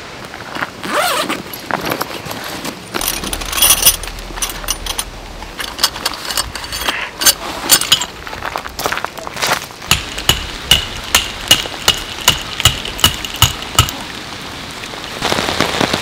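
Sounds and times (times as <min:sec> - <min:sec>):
gear clicking and clinking: 0:02.9 - 0:08.2, 0:09.9 - 0:13.9.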